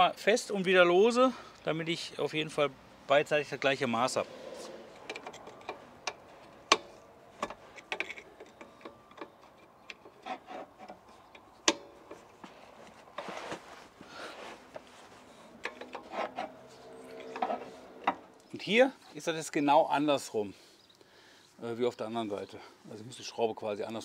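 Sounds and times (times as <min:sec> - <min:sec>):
tool rubbing and scraping: 0:04.1 - 0:18.6
hand tool clicking and knocking: 0:05.0 - 0:12.3.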